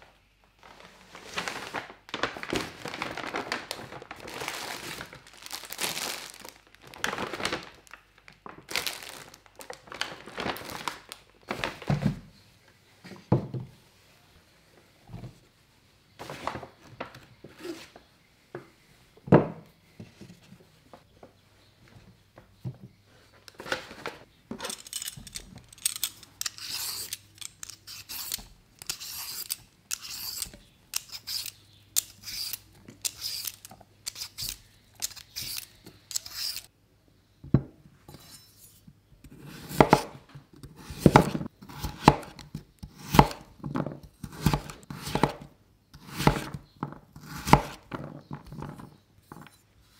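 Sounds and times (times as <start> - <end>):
peeler scraping carrot: 24.7 - 36.7.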